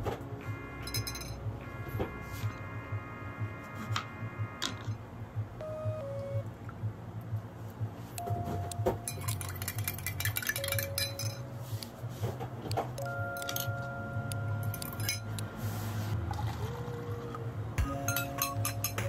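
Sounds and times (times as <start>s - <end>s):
background music: 0.0s - 19.0s
steady low hum: 0.0s - 19.0s
glassware and utensils clinking: 8.9s - 11.4s, 13.3s - 13.8s, 14.6s - 15.4s, 17.9s - 19.0s.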